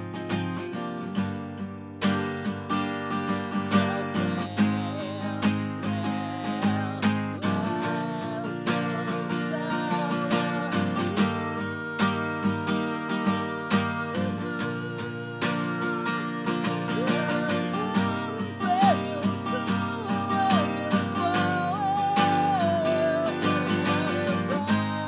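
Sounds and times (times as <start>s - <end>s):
guitar chords strummed: 0.0s - 25.0s.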